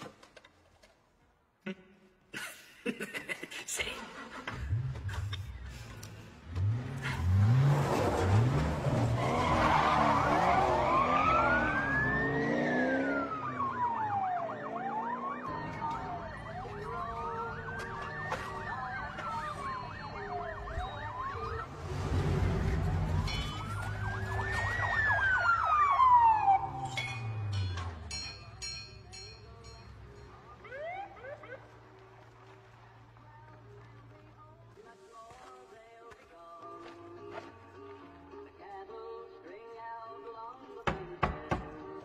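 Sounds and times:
car engine revving: 4.2s - 16.7s, 21.3s - 24.2s
police siren wailing: 8.3s - 28.1s, 30.3s - 32.0s.

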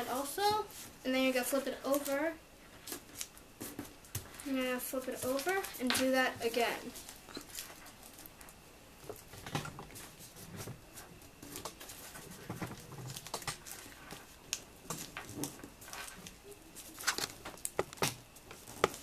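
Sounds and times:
paper being folded and creased: 15.0s - 19.0s.

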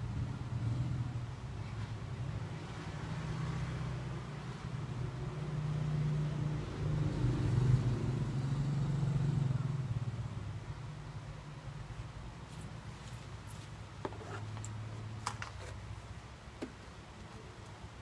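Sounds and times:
passing vehicle engine hum: 0.0s - 10.8s.

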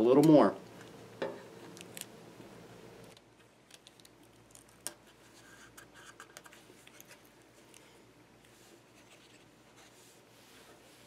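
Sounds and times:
tape clicks and rustles: 1.6s - 2.2s, 3.1s - 5.1s.

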